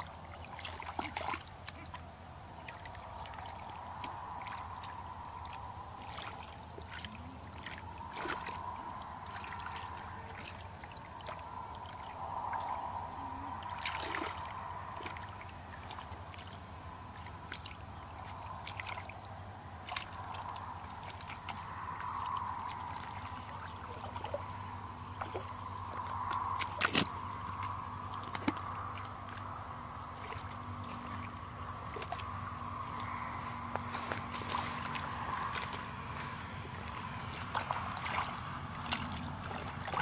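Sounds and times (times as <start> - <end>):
wet mud squelches: 0.0 - 12.7, 13.6 - 40.0
hands splashing in muddy water: 34.2 - 40.0.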